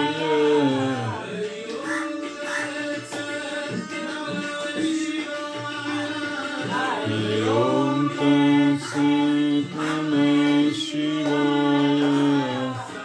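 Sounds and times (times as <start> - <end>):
group singing devotional song: 0.0 - 13.0.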